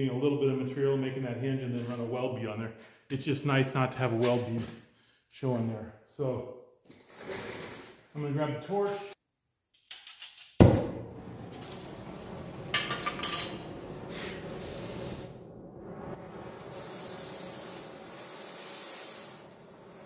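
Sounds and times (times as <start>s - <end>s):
cutting torch gas hiss: 13.5s - 15.5s, 16.2s - 20.0s.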